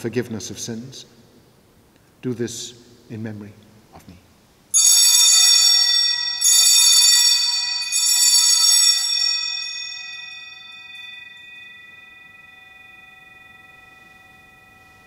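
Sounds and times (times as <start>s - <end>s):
altar bell ringing: 4.7s - 15.0s.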